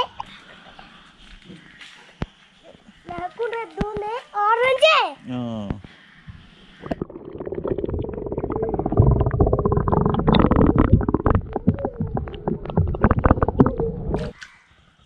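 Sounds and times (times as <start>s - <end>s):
loud underwater rumble: 6.8s - 14.3s
underwater clicks: 6.8s - 14.4s
water bubbling: 6.8s - 14.4s.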